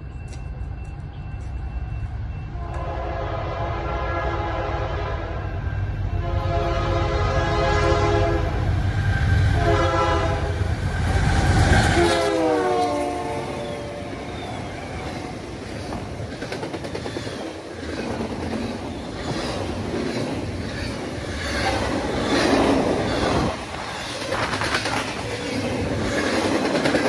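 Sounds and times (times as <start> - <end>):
train rumble: 0.0 - 27.0
locomotive air horn blasts: 2.6 - 8.6, 9.6 - 10.7, 12.0 - 14.1.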